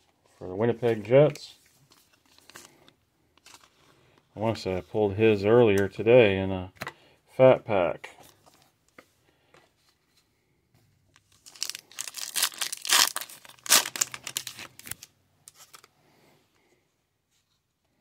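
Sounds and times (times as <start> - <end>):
foil wrapper tearing and crinkling: 11.3 - 15.8.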